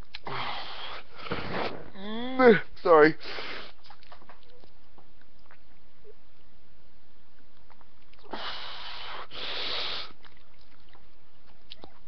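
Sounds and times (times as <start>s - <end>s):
person sniffing hard: 0.2s - 1.8s, 3.2s - 3.8s, 8.3s - 10.2s.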